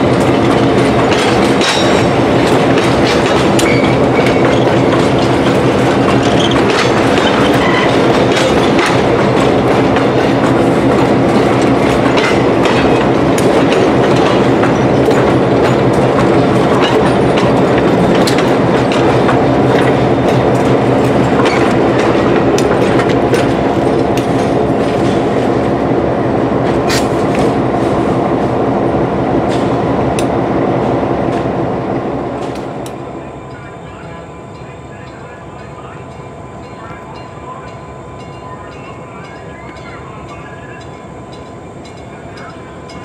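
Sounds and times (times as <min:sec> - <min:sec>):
train wheels clicking over rail joints: 0:00.0 - 0:25.8, 0:26.6 - 0:28.2, 0:29.4 - 0:30.4
diesel locomotive engine drone: 0:00.0 - 0:43.0.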